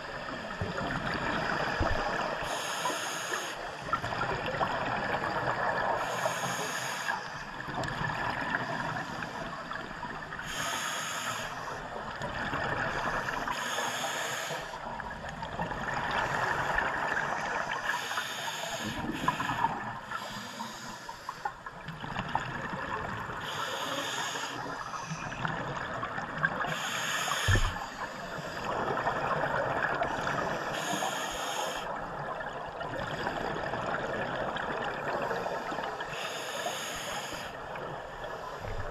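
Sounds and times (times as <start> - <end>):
exhaled bubbles gurgling: 0.0 - 2.8, 3.6 - 10.6, 11.6 - 13.7, 14.8 - 18.2, 21.4 - 38.9
regulator hissing inhalation: 6.0 - 7.2, 10.4 - 11.7, 13.5 - 14.8, 17.8 - 21.4, 23.4 - 24.7, 26.7 - 28.6, 30.4 - 31.9, 36.1 - 37.6.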